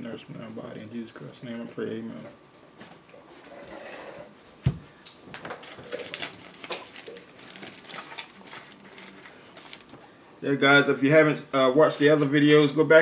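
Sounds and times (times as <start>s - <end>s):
aluminium foil crinkling: 5.4s - 10.1s.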